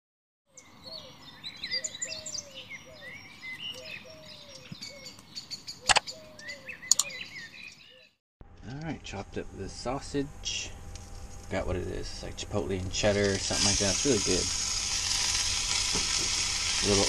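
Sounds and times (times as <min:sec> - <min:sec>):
birds chirping and warbling: 0:00.5 - 0:08.2
sharp clicks: 0:05.9 - 0:06.1, 0:06.9 - 0:07.2
background hiss: 0:08.9 - 0:17.0.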